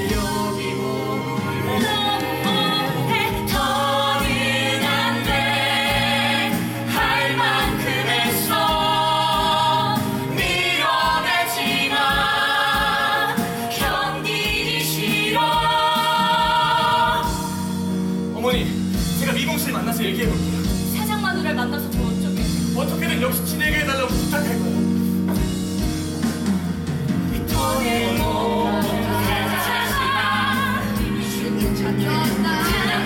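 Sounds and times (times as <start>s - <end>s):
cast singing together: 0.0s - 17.9s, 27.4s - 33.0s
instrumental accompaniment: 0.0s - 33.0s.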